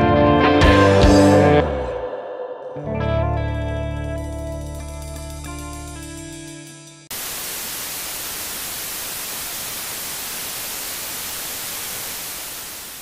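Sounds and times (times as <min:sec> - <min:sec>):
electric guitar chord ringing: 0:02.8 - 0:07.1
television static hiss: 0:07.1 - 0:13.0.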